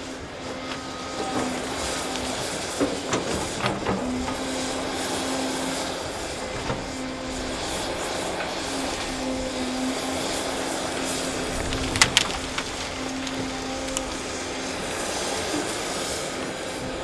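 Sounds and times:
excavator diesel engine humming: 0.0 - 17.0
wood snapping: 11.0 - 14.5.

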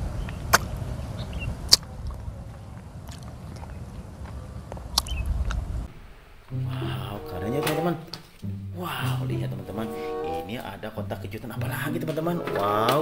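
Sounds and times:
low background rumble: 0.0 - 11.7
crunchy bites: 0.3 - 5.7
person chewing: 1.7 - 5.6.

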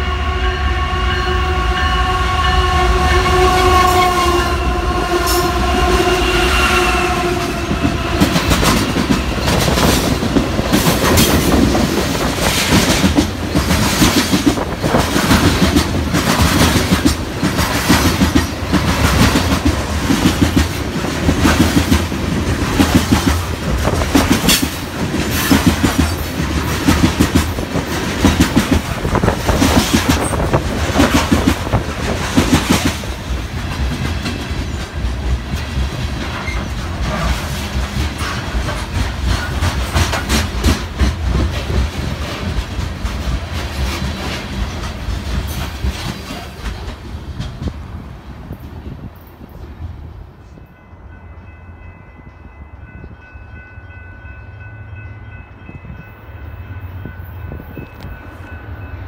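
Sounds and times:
locomotive air horn chord: 0.0 - 8.6
train wheels clickety-clack: 7.2 - 49.8.

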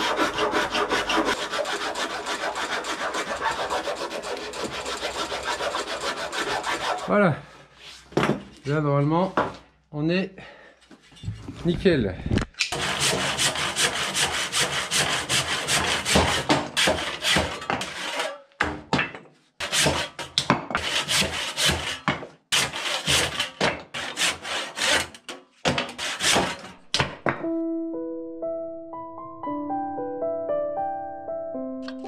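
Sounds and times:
hand tool scraping wood: 0.0 - 8.2, 12.7 - 18.7, 19.6 - 26.9.

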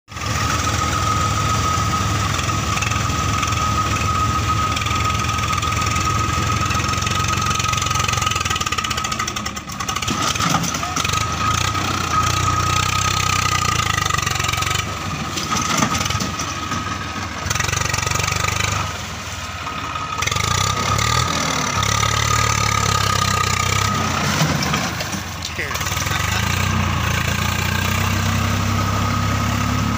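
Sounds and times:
tractor diesel engine under load: 0.1 - 29.9.

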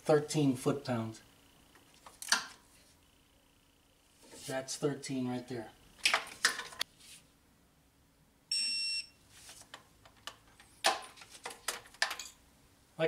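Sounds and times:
torque wrench beep: 8.5 - 9.2.

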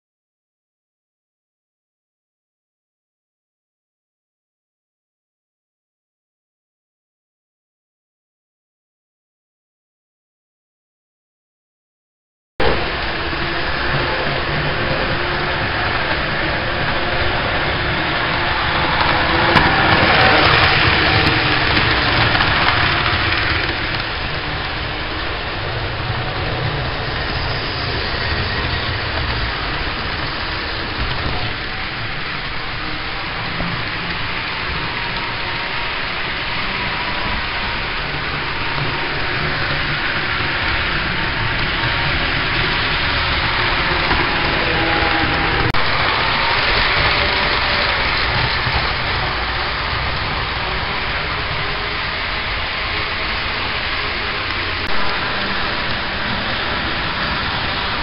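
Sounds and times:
model train motor whirring: 12.9 - 25.4, 27.0 - 58.0.

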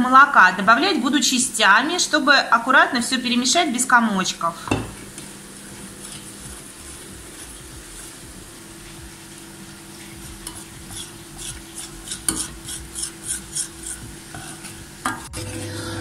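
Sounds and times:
metal spoon stirring in a saucepan: 4.9 - 15.8.

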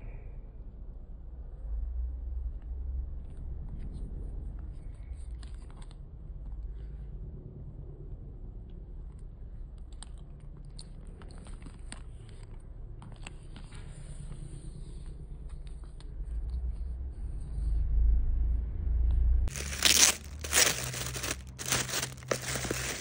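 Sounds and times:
handbag clicks and rustles: 19.5 - 23.0.

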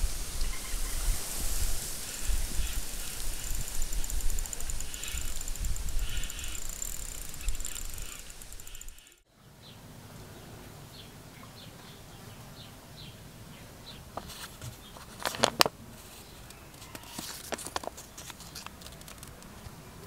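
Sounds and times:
faint bird chirps: 2.0 - 9.8
paper crinkling: 14.2 - 19.6.

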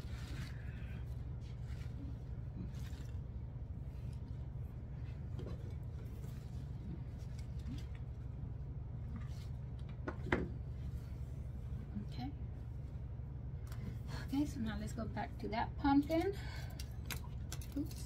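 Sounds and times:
artificial flower stems rustling: 0.0 - 10.0
steady low hum: 0.0 - 18.0.

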